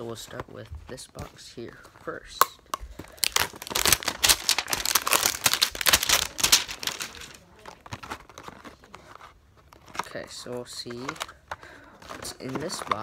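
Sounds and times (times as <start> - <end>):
plastic wrapping crinkling and tearing: 2.6 - 13.0.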